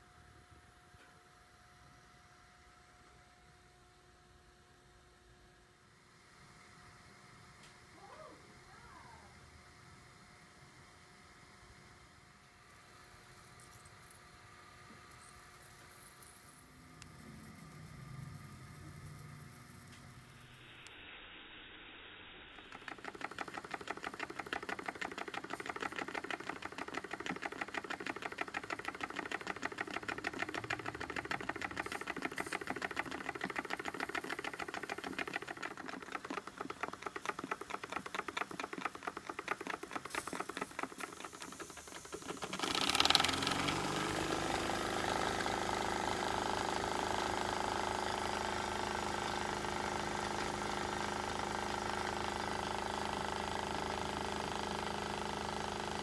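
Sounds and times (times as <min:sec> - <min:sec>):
model steam engine clattering: 0:22.7 - 0:44.2.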